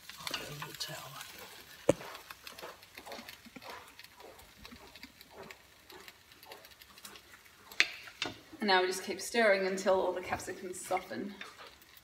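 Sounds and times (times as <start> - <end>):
vegetables sizzling in a frying pan: 0.0 - 3.5, 7.2 - 12.0
small crackles: 0.0 - 12.0
wooden spoon stirring: 0.0 - 12.0.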